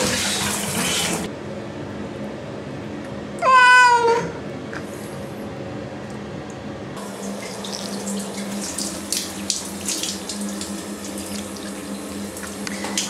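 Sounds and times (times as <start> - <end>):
shower head spraying water: 0.0 - 1.3, 7.0 - 13.0.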